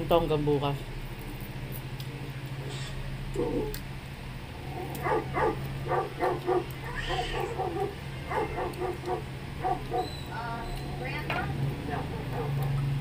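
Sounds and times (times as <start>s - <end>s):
small dog yipping: 4.9s - 11.2s.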